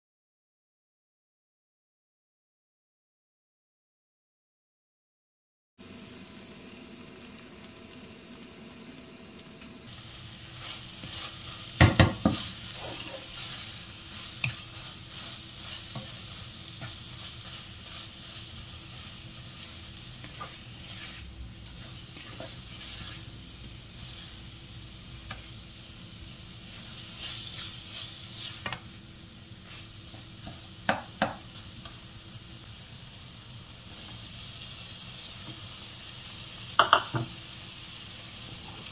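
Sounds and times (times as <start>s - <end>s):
food sizzling in a frying pan: 5.8s - 38.9s
spatula stirring and scraping: 9.9s - 32.0s
spatula clacking against pan: 11.8s - 13.2s, 30.4s - 31.4s.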